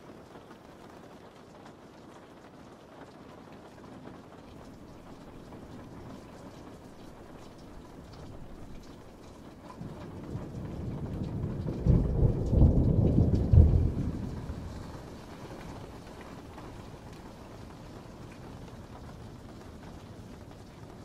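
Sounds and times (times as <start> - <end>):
steady rain: 0.0 - 21.0
thunder rolling: 4.9 - 21.0.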